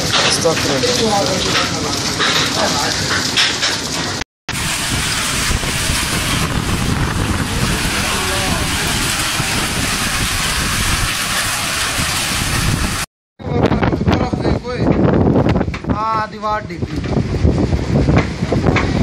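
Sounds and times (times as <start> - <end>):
hail and rain on pavement: 0.0 - 13.1.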